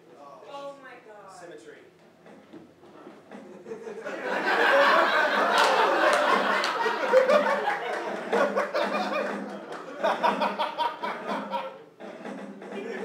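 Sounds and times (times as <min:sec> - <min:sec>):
audience laughing: 0:03.3 - 0:13.0.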